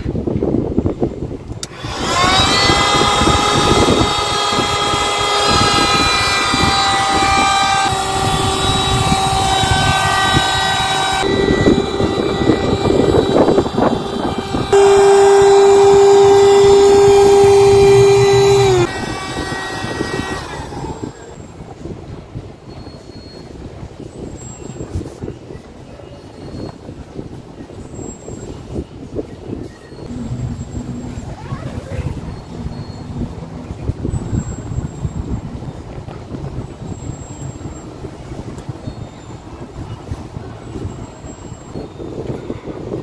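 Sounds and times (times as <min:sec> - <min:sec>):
electric air pump whining: 0:01.5 - 0:21.7, 0:30.1 - 0:35.9.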